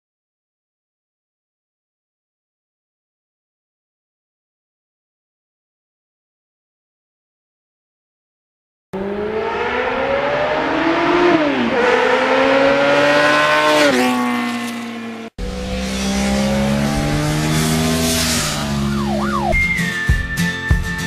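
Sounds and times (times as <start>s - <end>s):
motorcycle engine accelerating: 9.0s - 19.8s.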